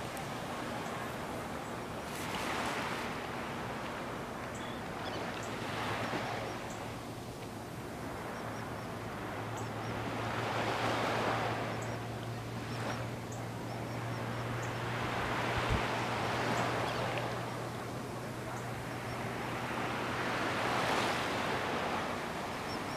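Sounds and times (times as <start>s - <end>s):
gentle surf waves washing: 0.0s - 22.9s.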